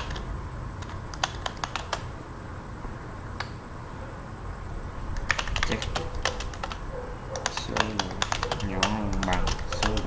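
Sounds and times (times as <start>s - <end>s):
computer keyboard keystrokes: 0.0s - 2.1s, 5.2s - 6.8s, 7.4s - 10.0s
low steady hum: 0.0s - 10.0s.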